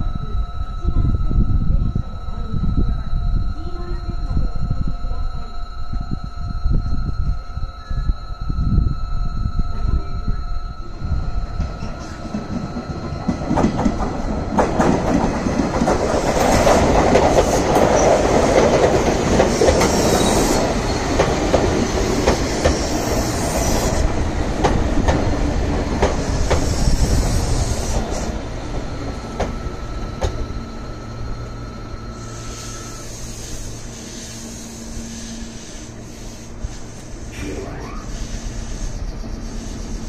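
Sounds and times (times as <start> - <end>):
electric train passing: 0.0 - 40.0
high-pitched wheel squeal: 32.1 - 36.5.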